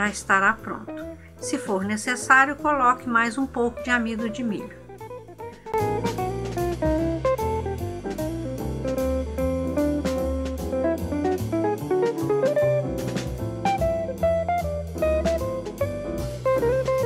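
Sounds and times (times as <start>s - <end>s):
plucked guitar melody: 0.6s - 17.0s
bass and drums beat: 4.8s - 17.0s.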